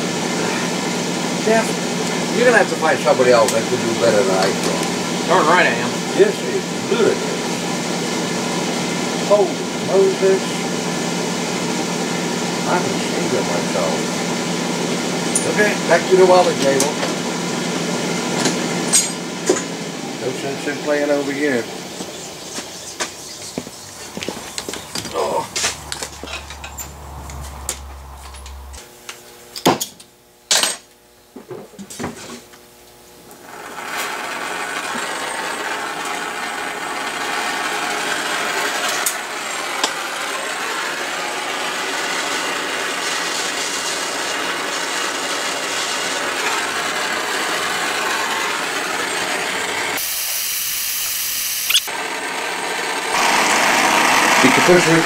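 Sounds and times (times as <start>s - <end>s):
gas torch hissing: 50.0s - 51.9s.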